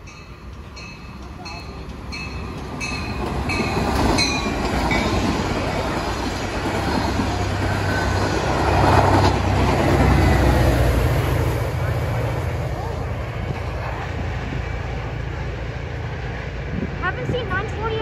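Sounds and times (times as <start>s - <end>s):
train passing with wheel clatter: 0.0s - 18.0s.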